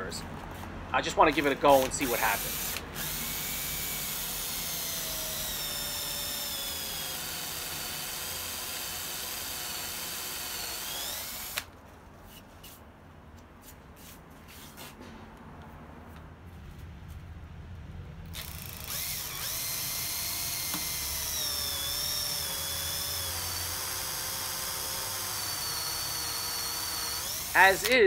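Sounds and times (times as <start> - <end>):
cordless drill whining: 1.3 - 11.7, 18.3 - 28.0.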